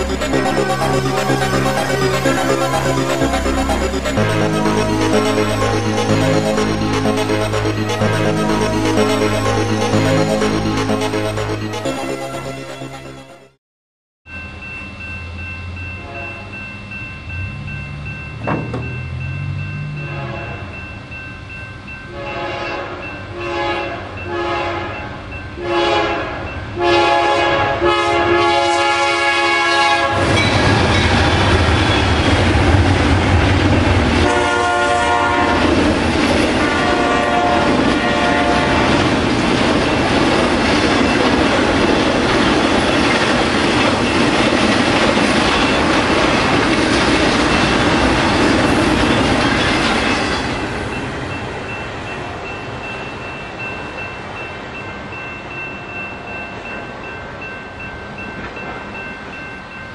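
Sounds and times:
locomotive air horn blasts: 0:20.1 - 0:20.7, 0:22.2 - 0:25.0, 0:25.6 - 0:30.4, 0:34.2 - 0:35.7, 0:36.6 - 0:39.0.

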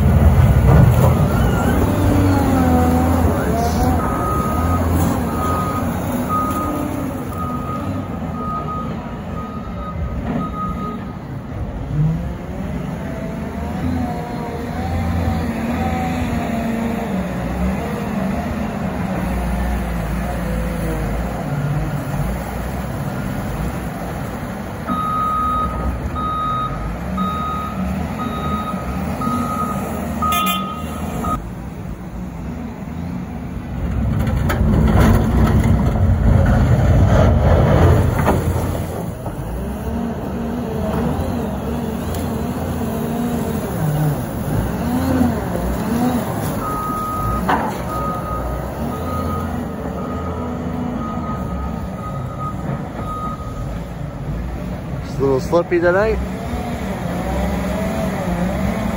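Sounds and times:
wheel loader diesel engine: 0:00.0 - 0:58.9
back-up alarm beeping: 0:24.9 - 0:31.4.

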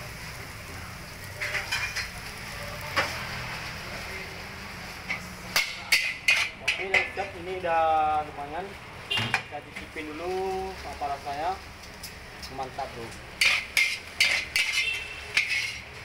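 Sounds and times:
stove and frying noise: 0:00.0 - 0:16.0
metal spatula scraping a wok: 0:01.2 - 0:02.3, 0:04.9 - 0:07.3, 0:13.3 - 0:16.0.

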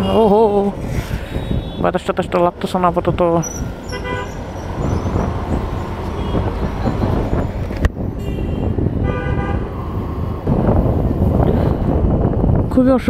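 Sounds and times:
motorcycle engine and road rumble: 0:00.0 - 0:13.0
vehicle horn honking: 0:01.4 - 0:01.9, 0:03.9 - 0:04.4, 0:06.0 - 0:07.2, 0:08.2 - 0:09.7.

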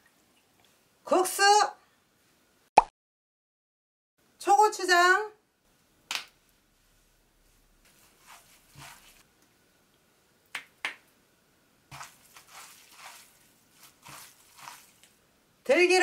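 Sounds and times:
noodles mixed by hand squishing: 0:06.4 - 0:09.4, 0:11.9 - 0:15.3
squeeze bottle squirting sauce: 0:11.9 - 0:15.0.

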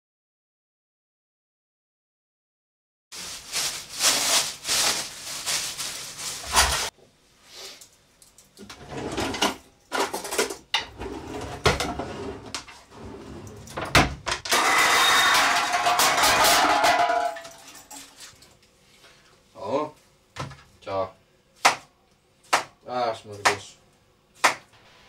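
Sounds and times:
kitchen utensils clattering on board: 0:08.9 - 0:12.7, 0:13.9 - 0:18.0.

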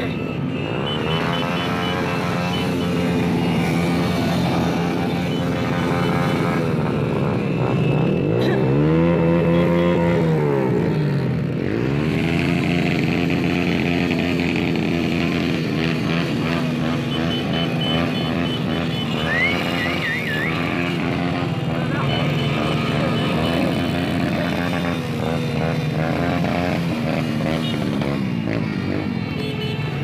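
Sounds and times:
motorcycle engine revving: 0:00.0 - 0:30.0
motorcycle engines droning: 0:00.0 - 0:30.0.

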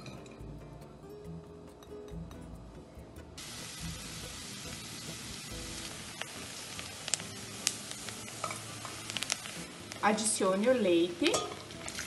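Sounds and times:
onion sizzling in butter: 0:03.4 - 0:12.0.

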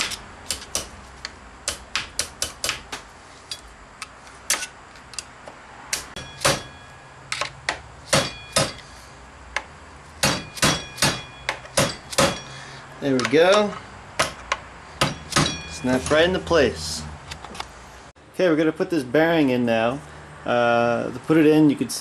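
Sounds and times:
metal tools clicking and tapping: 0:03.5 - 0:05.3, 0:09.5 - 0:16.3.

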